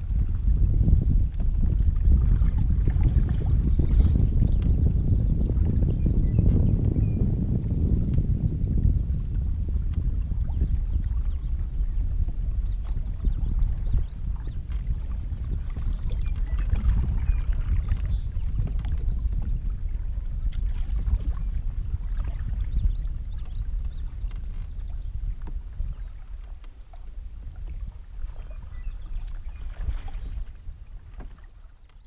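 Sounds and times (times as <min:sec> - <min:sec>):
wind rumble on microphone: 0:00.0 - 0:32.0
paddle strokes splashing: 0:12.2 - 0:32.0.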